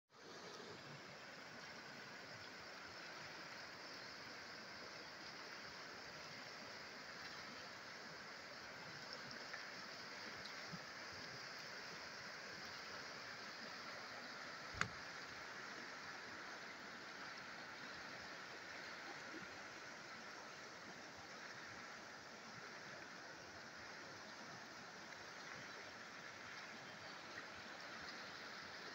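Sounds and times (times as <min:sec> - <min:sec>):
river water rushing over stones: 0:00.2 - 0:28.9
sharp click: 0:14.7 - 0:15.0.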